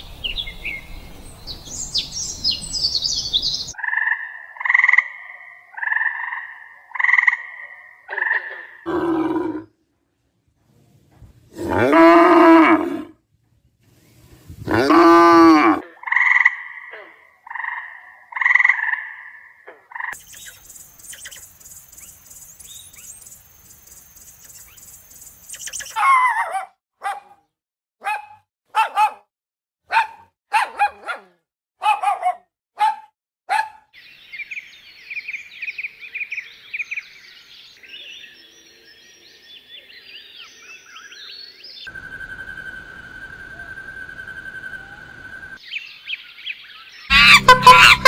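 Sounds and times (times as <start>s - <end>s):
high chirping and twittering: 0.0s - 3.8s, 20.0s - 26.0s
steady high whistling tone: 41.9s - 45.6s
short sharp animal calls: 47.1s - 48.0s.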